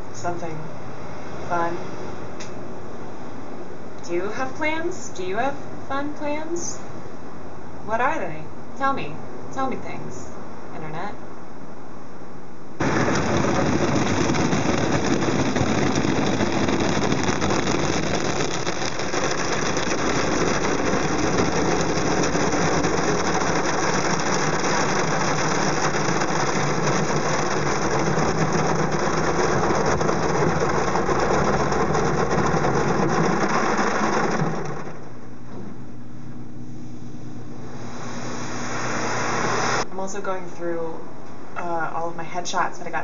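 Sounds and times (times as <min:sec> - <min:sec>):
low steady hum: 0:00.0 - 0:43.0
car wash water spray and brushes: 0:12.8 - 0:35.0, 0:37.7 - 0:39.8.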